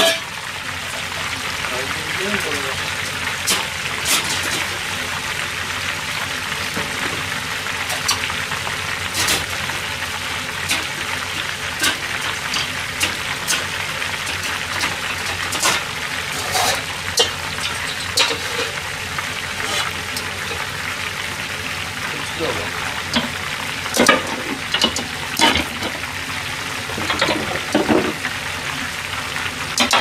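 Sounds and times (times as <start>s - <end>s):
food deep-frying in oil: 0.0s - 30.0s.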